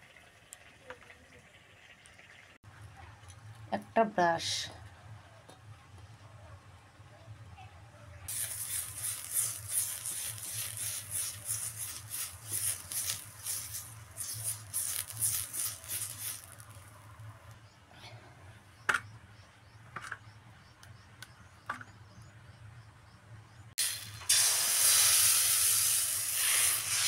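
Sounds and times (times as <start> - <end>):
brush scratching on metal wok: 8.3 - 17.0.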